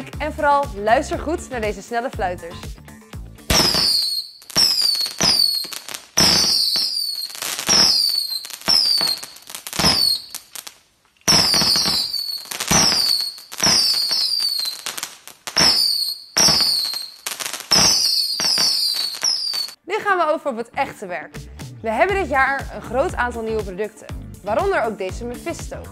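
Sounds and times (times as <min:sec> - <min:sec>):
firework pops: 0:03.4 - 0:19.8
shrill falling whistles: 0:03.5 - 0:10.4, 0:11.3 - 0:15.0, 0:15.6 - 0:19.8.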